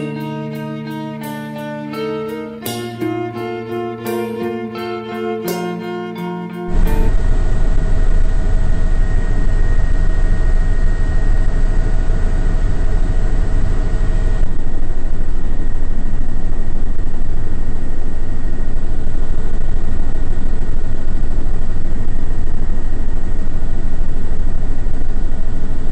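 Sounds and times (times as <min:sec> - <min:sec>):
helicopter engine and rotor: 0:06.7 - 0:25.6.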